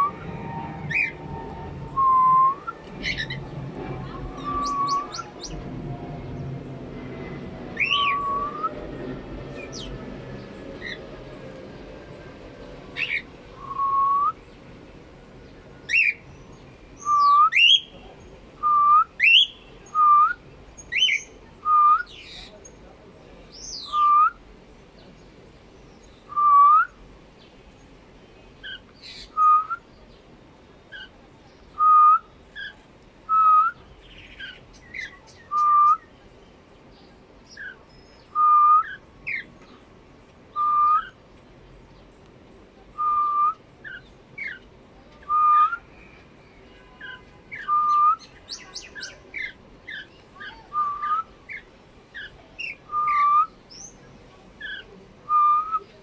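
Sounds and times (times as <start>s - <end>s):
cockatiels whistling: 4.4s - 5.3s, 52.6s - 53.5s.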